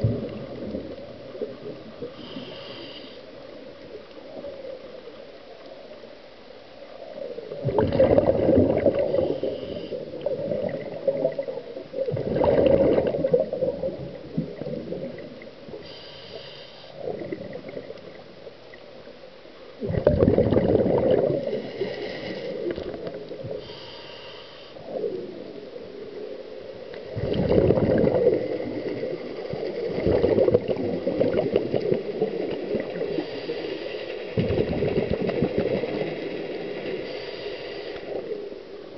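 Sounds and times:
faint regulator hiss: 0:00.0 - 0:07.6, 0:08.9 - 0:12.1, 0:13.5 - 0:19.8, 0:21.4 - 0:27.2, 0:31.9 - 0:34.4, 0:36.2 - 0:38.9
bursts of bubbles underwater: 0:07.5 - 0:09.4, 0:10.2 - 0:15.4, 0:19.8 - 0:21.6, 0:27.1 - 0:33.1, 0:34.4 - 0:36.2.

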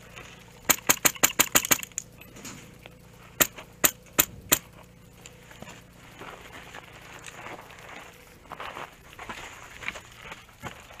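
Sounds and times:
airsoft rifle shots: 0:00.6 - 0:02.0, 0:03.4 - 0:04.8.

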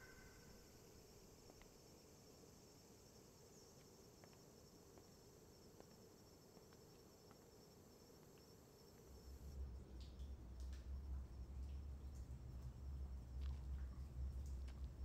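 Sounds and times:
faint ticks: 0:03.7 - 0:15.0.

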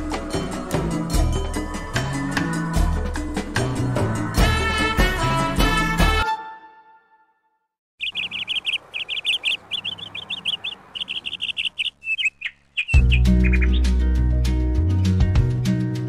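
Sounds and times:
music: 0:00.0 - 0:07.7, 0:12.9 - 0:16.0
songbird chirping: 0:08.0 - 0:14.1.

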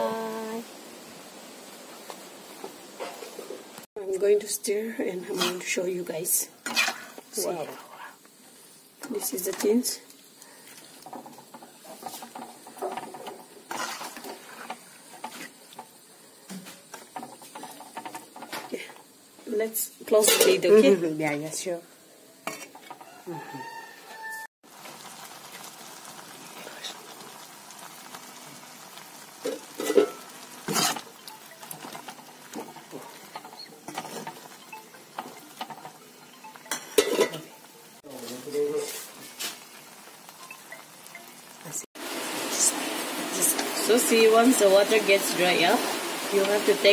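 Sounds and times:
simmering pot hiss: 0:00.0 - 0:46.9
spatula scraping wok: 0:04.9 - 0:21.1, 0:22.4 - 0:24.4, 0:29.2 - 0:41.2
metal spoon scraping a wok: 0:05.2 - 0:05.8, 0:06.6 - 0:07.3, 0:11.0 - 0:15.9, 0:22.5 - 0:23.1, 0:29.5 - 0:31.2.

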